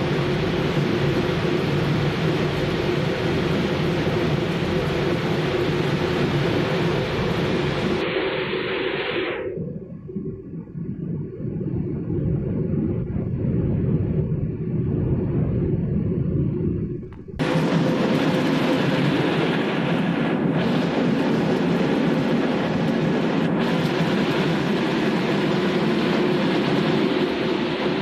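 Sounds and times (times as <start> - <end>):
machine hum and rumble: 0.0 - 28.0.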